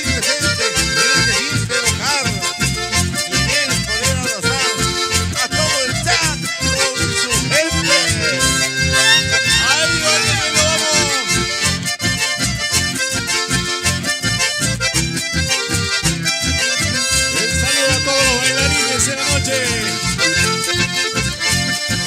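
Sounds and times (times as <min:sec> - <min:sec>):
acoustic guitar: 0:00.0 - 0:22.0
button accordions: 0:00.0 - 0:22.0
steady low beat: 0:00.2 - 0:12.4, 0:16.0 - 0:21.1.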